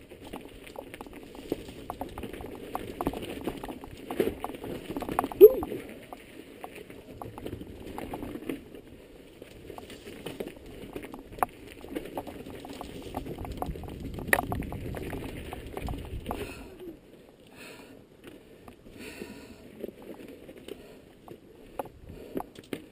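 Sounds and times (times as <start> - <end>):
bike clicks and knocks: 0.0 - 5.4, 9.4 - 16.5, 21.2 - 22.9
bike tyres crunching on stones: 0.0 - 16.4.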